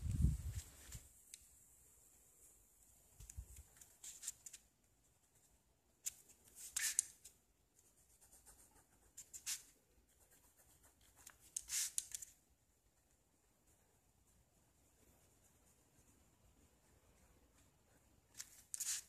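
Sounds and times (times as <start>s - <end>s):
pen scratching on paper: 7.8s - 12.3s, 14.9s - 19.0s.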